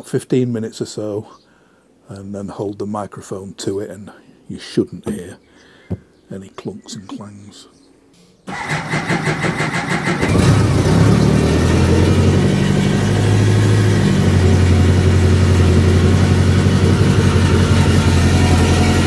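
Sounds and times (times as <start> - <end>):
engine starter cranking: 8.5 - 11.7
motorcycle engine idling: 8.5 - 19.0.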